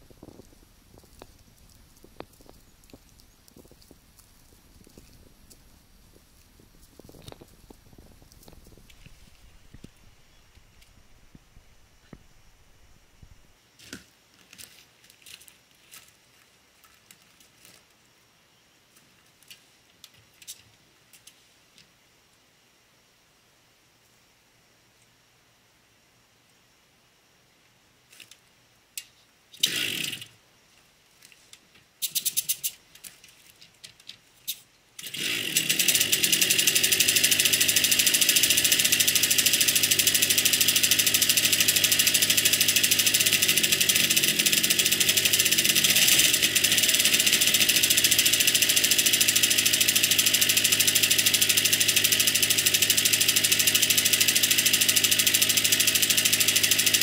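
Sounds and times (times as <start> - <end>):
moped engine starting and idling: 29.6 - 30.3, 35.0 - 57.0.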